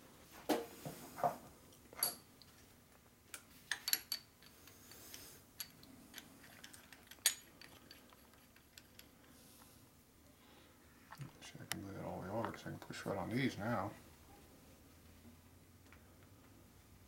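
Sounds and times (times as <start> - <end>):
light metallic clicks and clinks: 2.0 - 2.6, 3.7 - 9.4.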